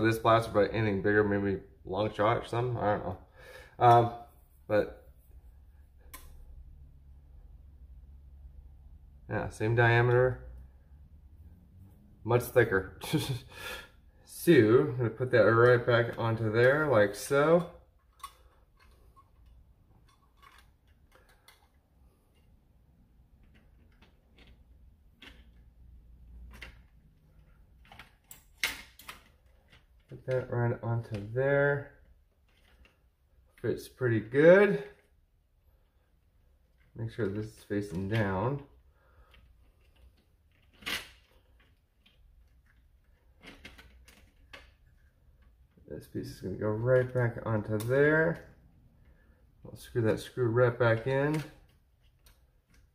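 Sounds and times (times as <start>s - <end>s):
plastic parts clacking: 15.5s - 31.4s, 32.0s - 33.6s, 35.8s - 49.3s.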